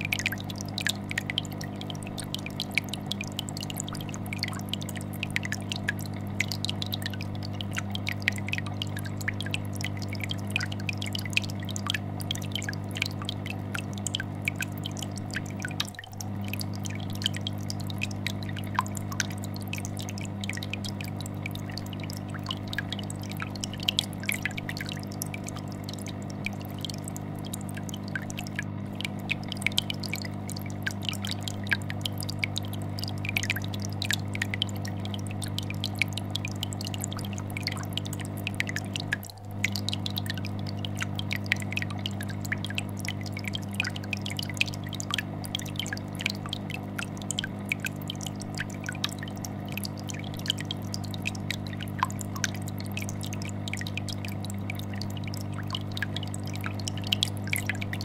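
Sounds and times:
aquarium air bubbles gurgling: 0.0s - 58.0s
fish tank filter hum: 0.0s - 58.0s.

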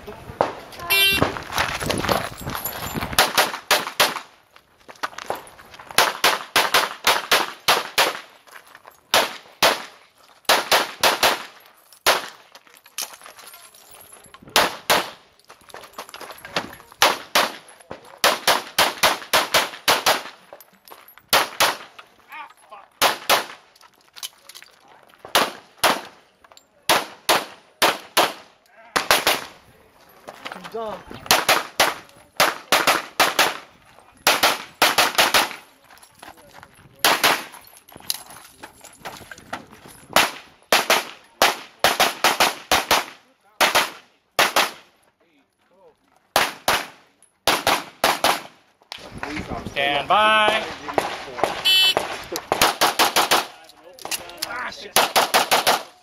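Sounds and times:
pistol shots: 6.0s - 8.3s, 9.1s - 12.4s, 18.2s - 20.4s, 26.9s - 29.6s, 31.3s - 33.6s, 34.2s - 35.6s, 40.2s - 44.9s, 46.4s - 48.5s, 50.5s - 53.6s, 55.0s - 56.0s.

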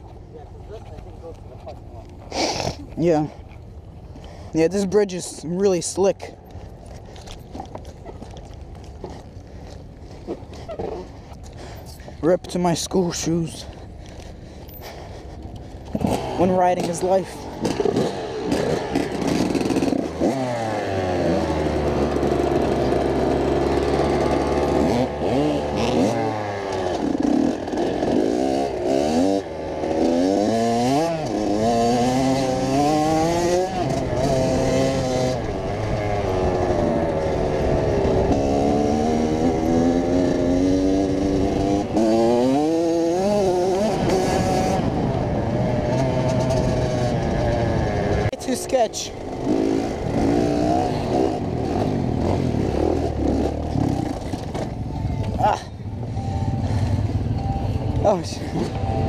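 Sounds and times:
dirt bike engine revving: 15.9s - 59.0s.

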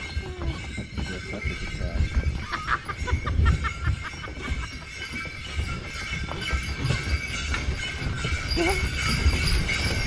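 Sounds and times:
sleigh bells jingling: 0.0s - 10.0s.

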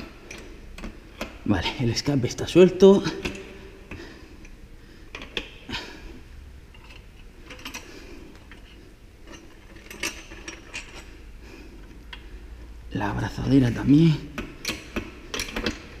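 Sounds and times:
metallic clinks and knocks: 6.7s - 11.2s.

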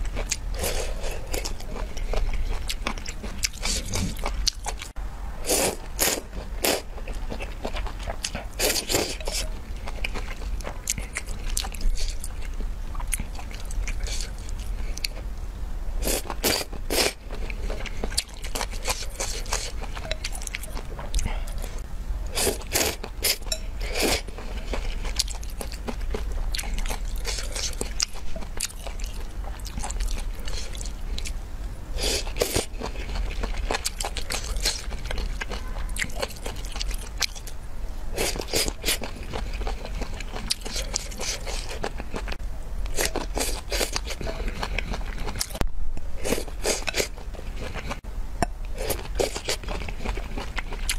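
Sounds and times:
person slurping noodles: 5.4s - 6.9s.

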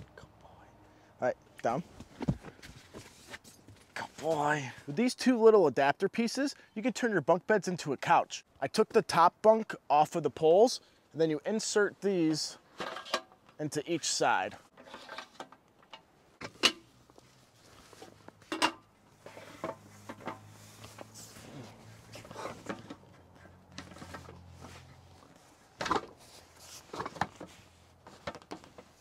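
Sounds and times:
fabric rustling: 17.0s - 18.5s, 19.1s - 22.8s.

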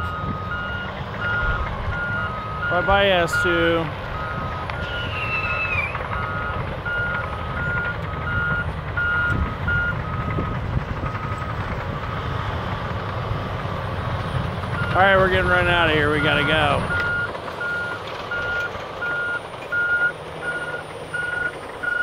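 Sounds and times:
backup alarms beeping: 0.0s - 11.6s, 15.6s - 22.0s
diesel engines rumbling: 0.0s - 22.0s
high squeal sliding down: 4.8s - 6.0s.

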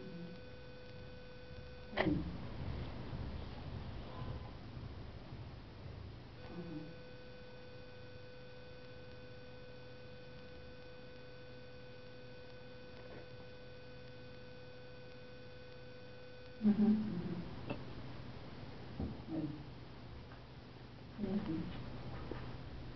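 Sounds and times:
thin high whine: 0.0s - 17.9s
faint electrical hum: 0.0s - 22.9s.

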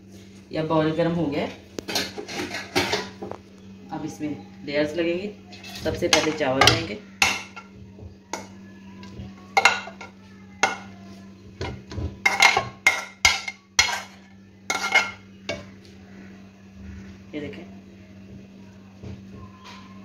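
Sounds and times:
steady low hum: 0.0s - 20.0s
spoon clinking against metal pots: 5.6s - 7.7s, 9.6s - 10.9s, 11.6s - 15.7s.

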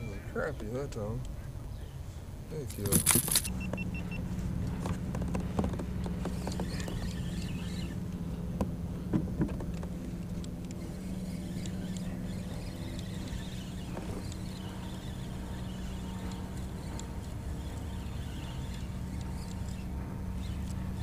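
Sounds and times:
fishing reel whirring: 6.1s - 8.2s, 10.3s - 21.0s.

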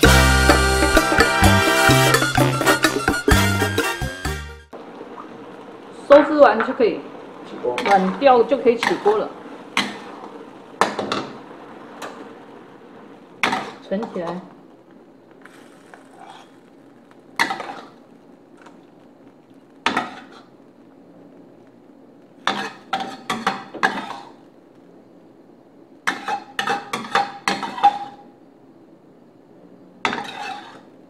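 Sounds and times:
metal spatula scraping a wok: 15.4s - 16.7s, 17.4s - 18.0s, 19.9s - 20.5s, 22.4s - 24.4s, 26.1s - 28.2s, 30.1s - 30.9s.

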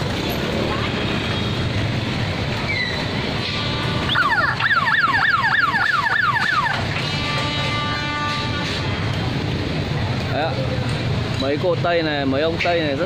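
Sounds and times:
motorbike traffic: 0.0s - 13.0s
electronic warning siren wailing: 4.1s - 6.9s.

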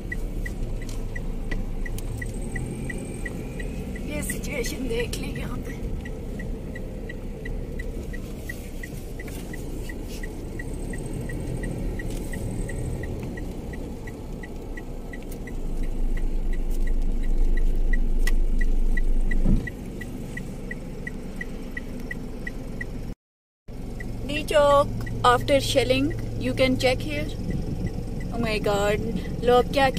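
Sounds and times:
dashboard ticking: 0.0s - 23.0s
car engine and road rumble: 0.0s - 29.9s.

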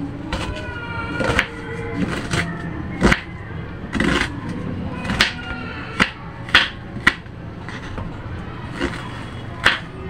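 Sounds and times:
knife slicing onion: 1.2s - 3.3s, 3.9s - 4.4s, 5.0s - 7.9s, 8.6s - 9.9s.

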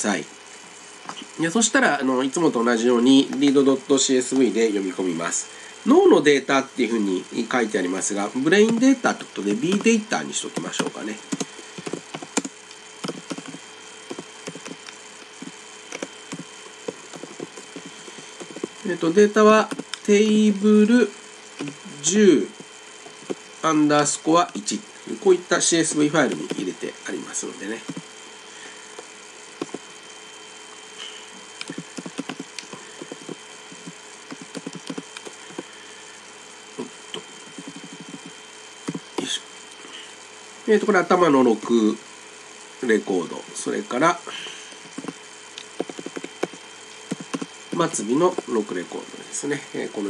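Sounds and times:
keyboard keys clicking: 10.6s - 18.7s, 19.6s - 20.1s, 31.6s - 35.6s, 37.5s - 38.3s, 45.0s - 47.5s.

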